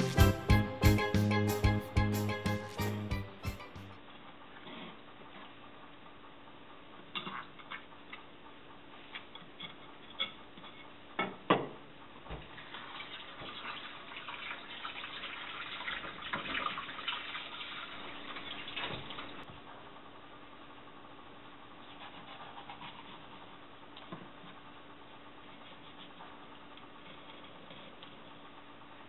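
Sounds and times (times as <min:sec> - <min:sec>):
knife scraping on cutting board: 0:21.8 - 0:23.5.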